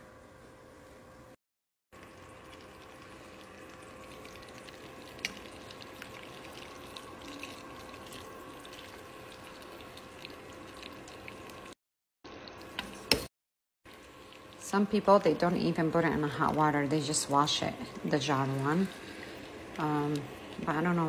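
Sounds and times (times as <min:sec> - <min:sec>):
faint steady hum: 0:02.0 - 0:11.8, 0:13.9 - 0:21.0
leaves stirred in water: 0:02.5 - 0:11.5.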